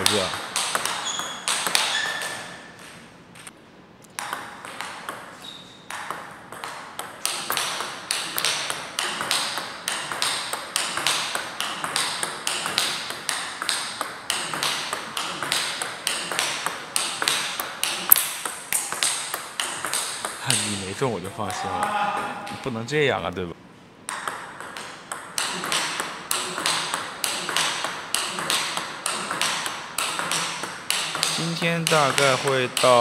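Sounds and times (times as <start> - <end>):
ping pong ball hitting bats: 0.0 - 3.5, 4.1 - 22.7, 24.0 - 33.0
ping pong ball ticking on table: 4.1 - 20.7, 24.1 - 33.0.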